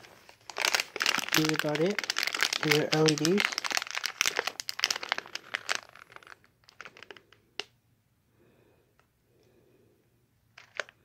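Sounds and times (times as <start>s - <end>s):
plastic bag crinkling: 0.0s - 7.7s, 10.6s - 11.0s.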